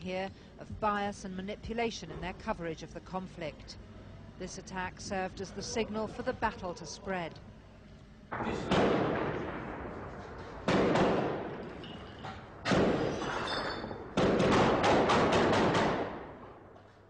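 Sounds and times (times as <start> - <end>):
gunshots echoing between buildings: 8.3 - 16.8.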